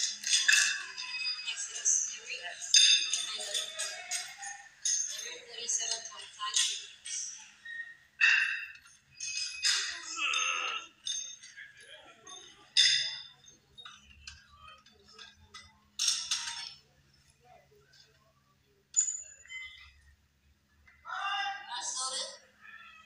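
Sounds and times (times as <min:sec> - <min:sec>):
barbell plates clinking: 0:00.0 - 0:01.9, 0:02.6 - 0:07.4, 0:08.2 - 0:16.8
voices shouting: 0:21.0 - 0:23.0.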